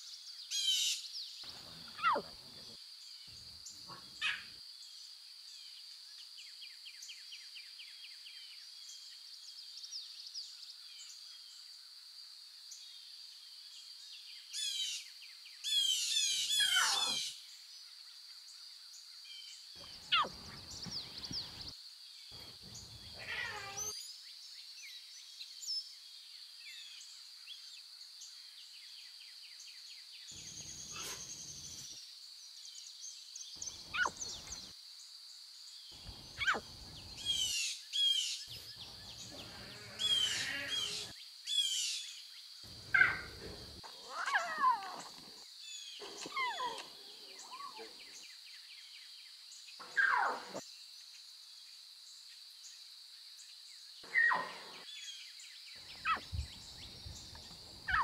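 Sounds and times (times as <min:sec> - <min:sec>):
rapid bird song: 0:12.7 - 0:51.2, 0:53.4 - 0:58.0
bird chirps and calls: 0:15.7 - 0:17.4, 0:19.8 - 0:21.7, 0:33.6 - 0:34.7, 0:36.0 - 0:42.1, 0:55.8 - 0:58.0.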